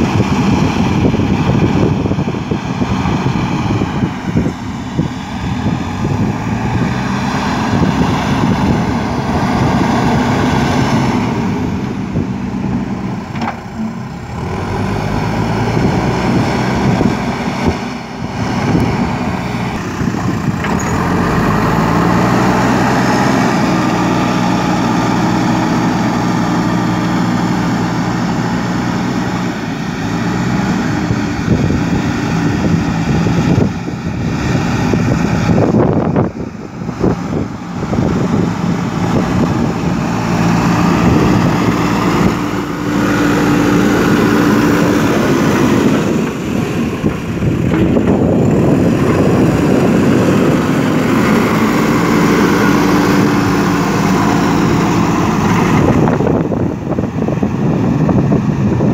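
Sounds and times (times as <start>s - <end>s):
diesel engine under load: 0.0s - 58.9s.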